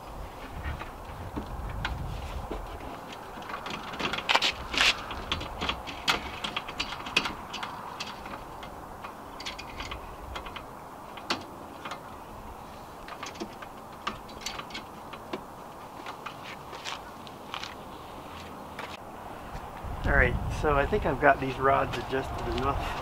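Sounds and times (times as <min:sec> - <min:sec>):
metal clicks and ticks: 0:03.4 - 0:12.1.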